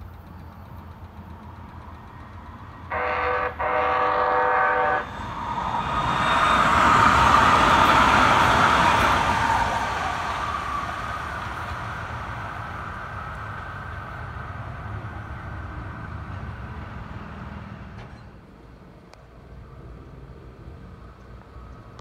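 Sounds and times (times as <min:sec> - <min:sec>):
train wheels on track: 0:00.0 - 0:22.0
train horn: 0:02.8 - 0:05.1.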